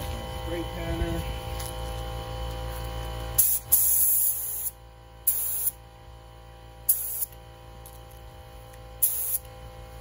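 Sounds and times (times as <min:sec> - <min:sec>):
spray gun hissing: 0:09.0 - 0:09.4.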